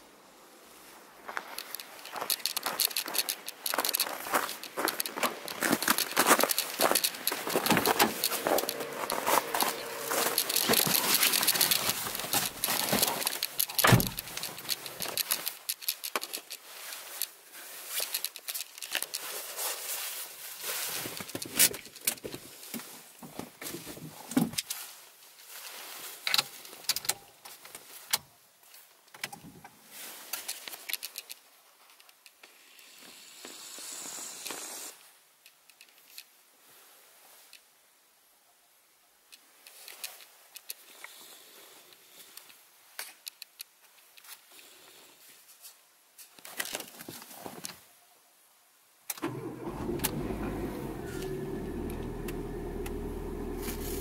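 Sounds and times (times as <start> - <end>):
rustling: 0.8 - 29.0, 39.4 - 47.9
keys jangling: 1.6 - 16.6
car door opening: 7.6 - 14.5
car door shutting thump: 13.8 - 14.2.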